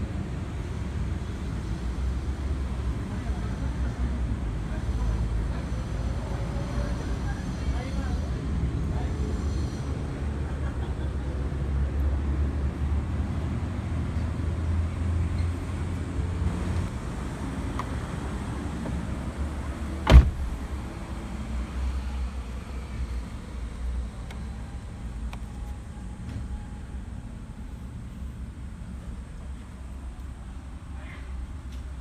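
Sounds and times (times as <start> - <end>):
low rumble in van cabin: 12.7 - 32.0.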